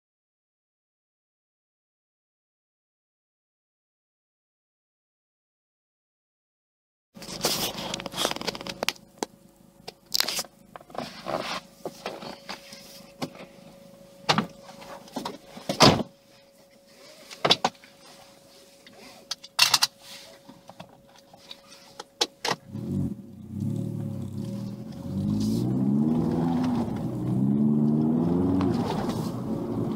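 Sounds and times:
car engine idling: 7.2 - 29.9
exhaust note rising: 22.7 - 29.9.

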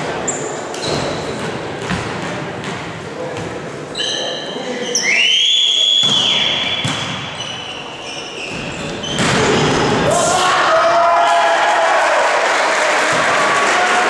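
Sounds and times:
referee's whistle blast: 5.0 - 7.0
crowd noise and applause: 9.6 - 14.0.

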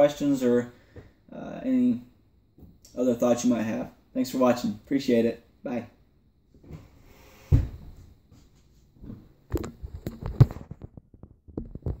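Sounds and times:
dull thump: 7.5 - 8.0.

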